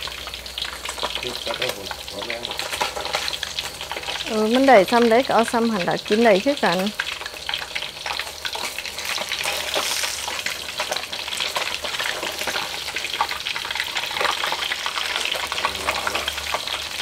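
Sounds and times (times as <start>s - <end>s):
fish sizzling in hot oil: 0.0s - 17.0s
spatula scraping wok: 1.9s - 4.3s, 7.0s - 17.0s.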